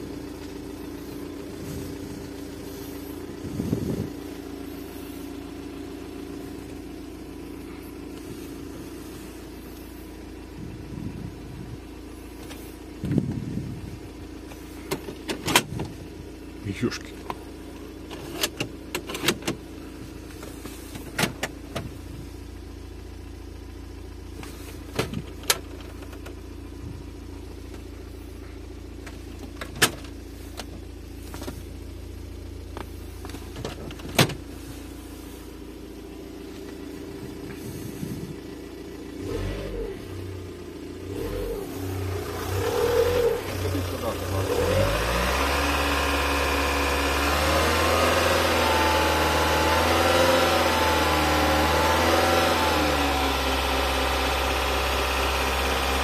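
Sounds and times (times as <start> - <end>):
car engine idling: 0.0 - 56.0
car engine revving: 32.2 - 56.0.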